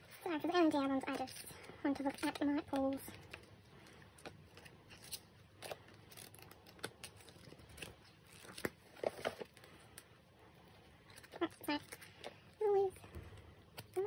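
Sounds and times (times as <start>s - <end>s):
paper and cardboard rustling: 0.0s - 9.8s.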